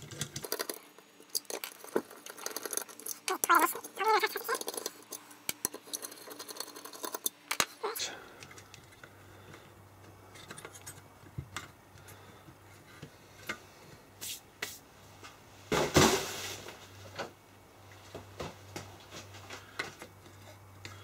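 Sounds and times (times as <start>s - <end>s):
small parts clicking and tapping: 0.0s - 7.8s, 8.4s - 13.6s.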